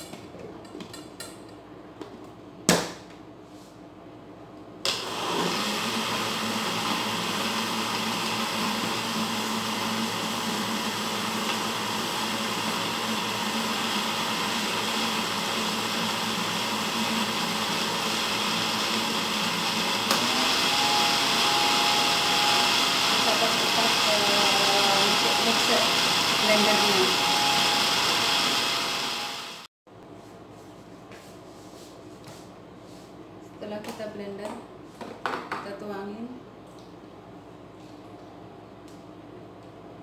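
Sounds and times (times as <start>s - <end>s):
electric blender running: 4.9s - 29.7s.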